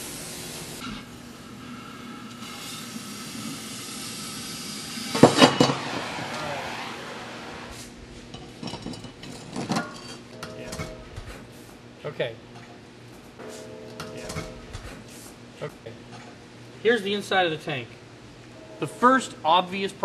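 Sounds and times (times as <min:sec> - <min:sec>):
cutting torch hissing: 0:00.0 - 0:00.9, 0:01.5 - 0:08.1
metal clanks: 0:08.3 - 0:11.5, 0:13.4 - 0:15.2.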